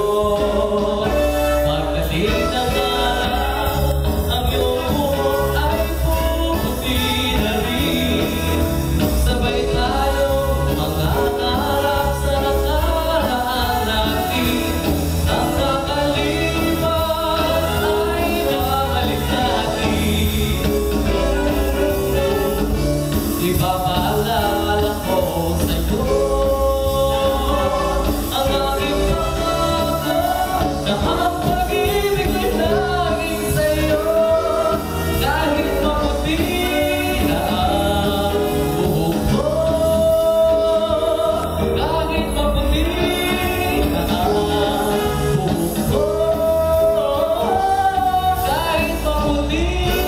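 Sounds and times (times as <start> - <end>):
instrumental accompaniment: 0.0 - 50.0
man singing into microphone: 0.0 - 50.0
steady bass line: 0.0 - 50.0.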